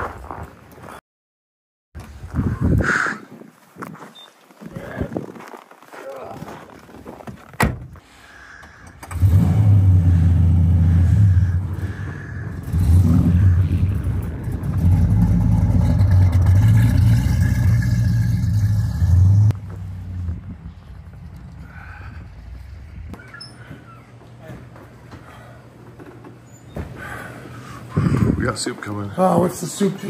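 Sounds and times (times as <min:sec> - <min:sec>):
car engine running: 0:09.2 - 0:21.8.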